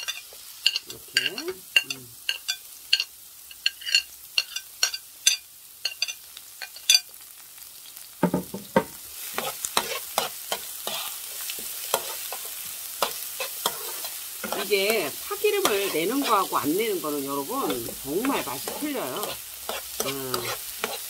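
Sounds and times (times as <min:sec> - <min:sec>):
onion frying in oil: 0:00.0 - 0:21.0
knocks and scrapes on pan: 0:08.2 - 0:10.0.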